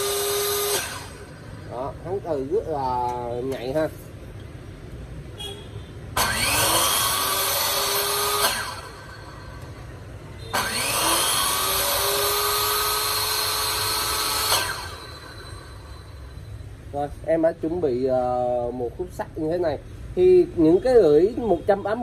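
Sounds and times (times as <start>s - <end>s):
metal saw motor whine: 0.0s - 1.9s, 6.2s - 9.7s, 10.4s - 16.6s.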